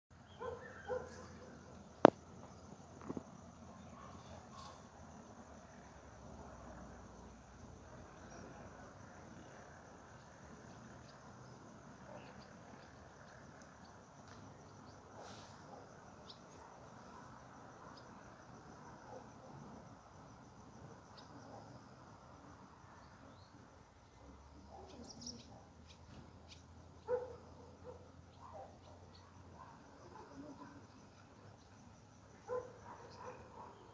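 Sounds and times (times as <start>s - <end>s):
crickets chirring: 0.1s - 33.9s
bird chirps: 0.2s - 2.0s, 24.7s - 31.0s.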